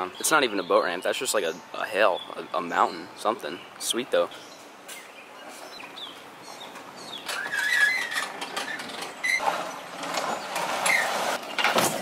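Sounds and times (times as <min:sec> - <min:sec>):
boat trailer knocking and clattering: 0:07.1 - 0:12.0.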